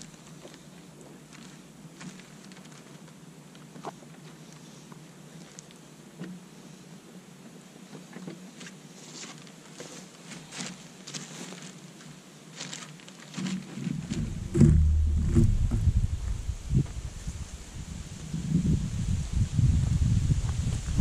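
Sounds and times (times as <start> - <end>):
plastic bags rustling and crinkling: 1.3 - 3.2, 9.0 - 15.2
loud low rumble: 13.9 - 17.9.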